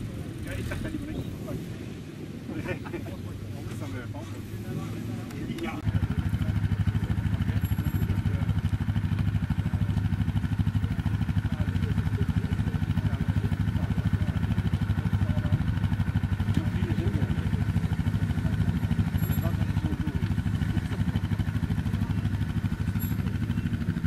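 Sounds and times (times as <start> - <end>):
quad bike engine at low revs: 0.0 - 24.0.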